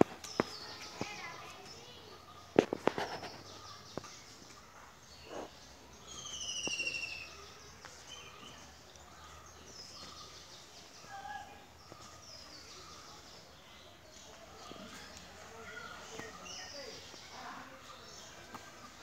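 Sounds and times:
birds calling: 0:00.0 - 0:19.0.

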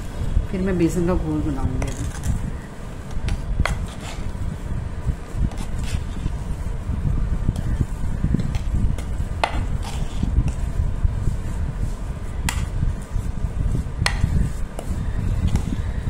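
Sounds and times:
spoon scraping mashed potato: 0:01.7 - 0:04.4, 0:05.2 - 0:06.7, 0:07.5 - 0:16.0.

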